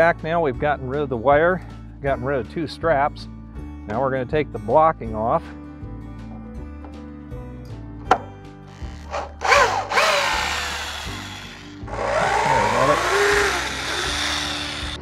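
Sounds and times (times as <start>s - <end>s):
electric drill running: 8.8s - 15.0s.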